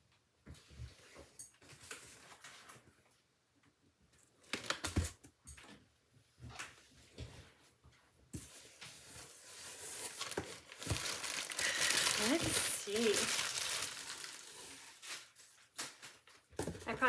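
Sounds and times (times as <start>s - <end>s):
bubble wrap crinkling: 8.5s - 17.0s.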